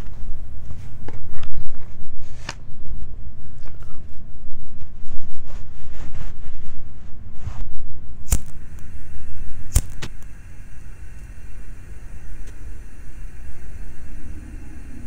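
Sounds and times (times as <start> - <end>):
steady low rumble: 0.0 - 15.0
cigarette lighter clicks: 9.6 - 10.4.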